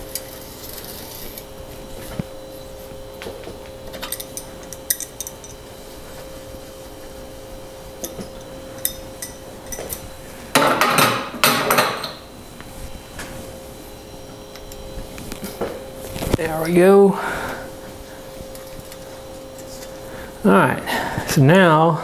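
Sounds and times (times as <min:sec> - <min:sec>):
metal tools clinking: 0:03.9 - 0:05.6, 0:08.0 - 0:12.3.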